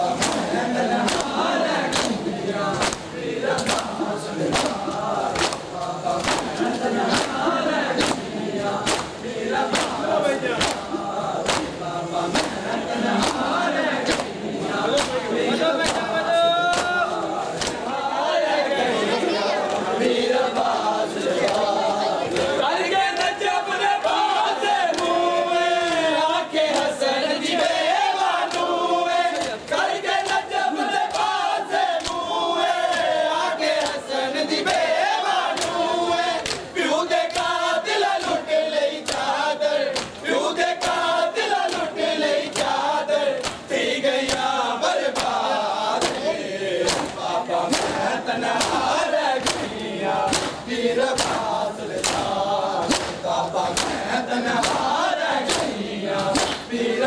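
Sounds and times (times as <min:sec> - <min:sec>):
men chanting together: 0:00.0 - 0:57.0
hands slapping bare chests: 0:00.1 - 0:17.0, 0:17.6 - 0:17.9, 0:29.3 - 0:29.6, 0:30.2 - 0:33.2, 0:33.8 - 0:34.0, 0:35.5 - 0:37.6, 0:38.2 - 0:40.2, 0:40.8 - 0:56.8.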